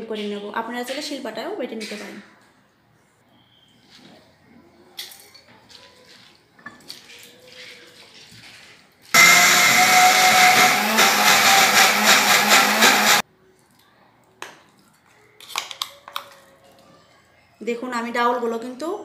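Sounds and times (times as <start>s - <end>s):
mixer grinder grinding lentils: 9.2s - 13.2s.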